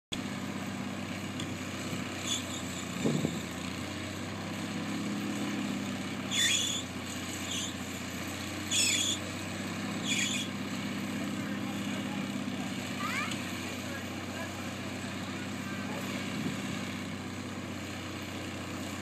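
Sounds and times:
backhoe engine running: 0:00.1 - 0:19.0
high-pitched squeals: 0:02.2 - 0:02.9, 0:06.3 - 0:07.8, 0:08.7 - 0:09.3, 0:10.0 - 0:10.5.

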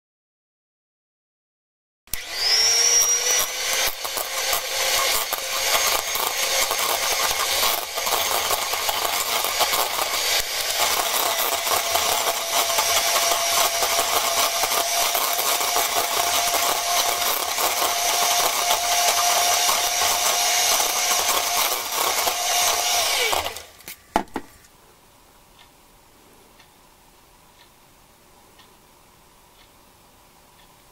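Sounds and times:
electric hand mixer running: 0:02.1 - 0:23.8.

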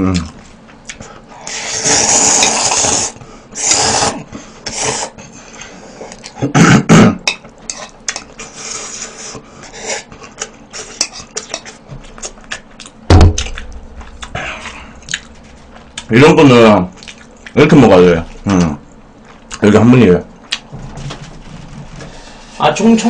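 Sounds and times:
person slurping noodles: 0:01.5 - 0:05.2.

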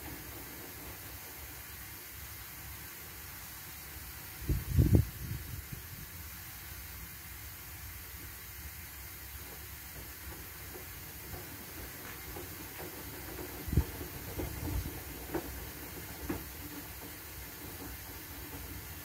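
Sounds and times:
washing machines tumbling laundry: 0:00.0 - 0:19.0
thuds and clicks of load: 0:09.3 - 0:19.0.

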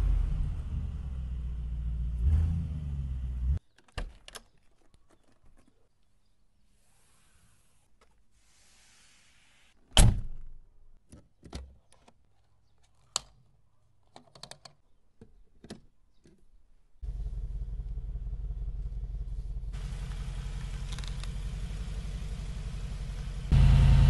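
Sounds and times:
car engine idling: 0:17.0 - 0:24.0.

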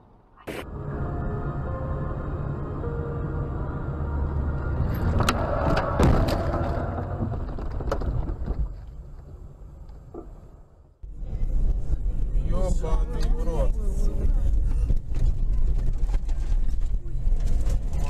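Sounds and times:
car road and engine noise: 0:00.0 - 0:18.0.

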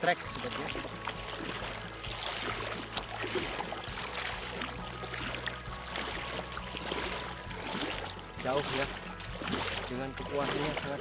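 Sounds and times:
small splashes from steps: 0:00.0 - 0:11.0
water sloshing around wading legs: 0:00.0 - 0:11.0.

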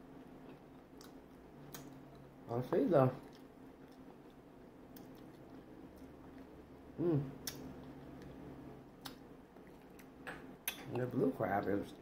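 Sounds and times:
wet chewing: 0:03.2 - 0:06.6
person humming: 0:07.0 - 0:07.4.

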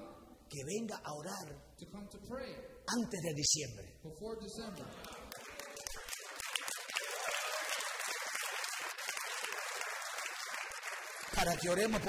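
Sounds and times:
congregation applauding: 0:04.8 - 0:12.0.

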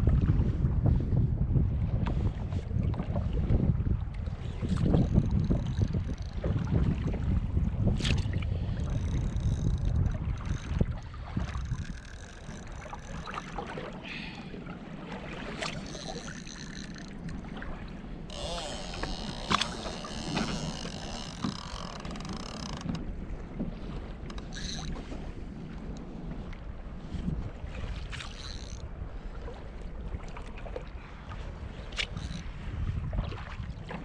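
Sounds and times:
water moving around kayak: 0:00.0 - 0:34.0
wind buffeting microphone: 0:00.0 - 0:34.0
fishing reel clicking: 0:08.9 - 0:10.8, 0:11.7 - 0:13.4, 0:15.8 - 0:17.4, 0:18.3 - 0:22.9, 0:24.3 - 0:24.9, 0:28.3 - 0:28.8
fishing reel high buzzing: 0:15.8 - 0:17.1, 0:18.3 - 0:22.8, 0:28.4 - 0:28.8.

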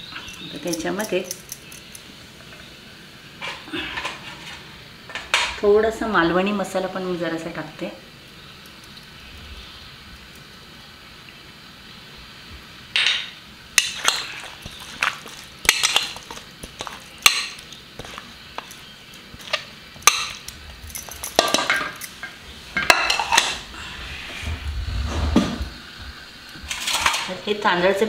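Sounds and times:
hand clinking on metal plate: 0:00.2 - 0:02.1, 0:13.8 - 0:23.5.

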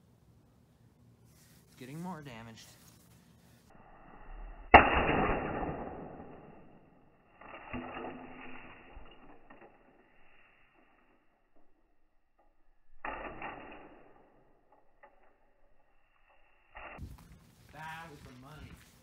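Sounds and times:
scuffling noise: 0:01.2 - 0:03.7, 0:17.0 - 0:19.0.

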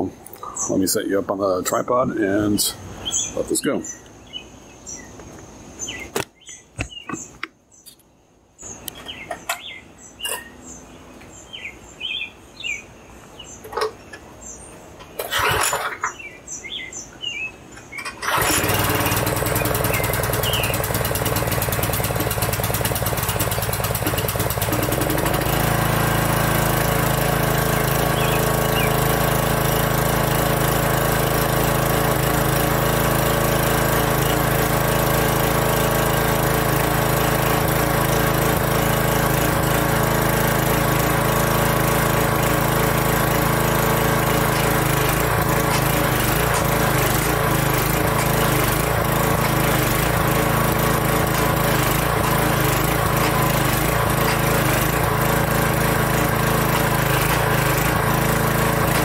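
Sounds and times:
birds chirping: 0:00.0 - 0:25.2, 0:27.9 - 0:29.2
pressure washer running: 0:15.2 - 0:16.0, 0:18.1 - 0:59.0
handling knocks and clicks: 0:44.5 - 0:48.6, 0:51.2 - 0:54.9.

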